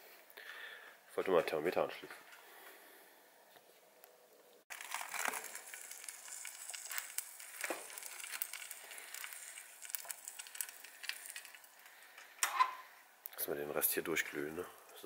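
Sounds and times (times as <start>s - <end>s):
charcoal crackling and popping: 4.6s - 15.0s.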